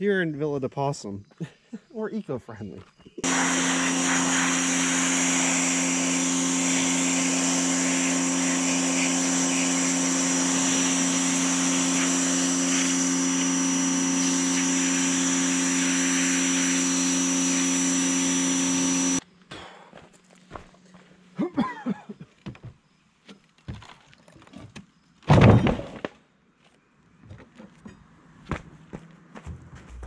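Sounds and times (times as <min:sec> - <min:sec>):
water jet hissing into metal tank: 0:03.2 - 0:13.5
pressure washer running: 0:03.2 - 0:19.2.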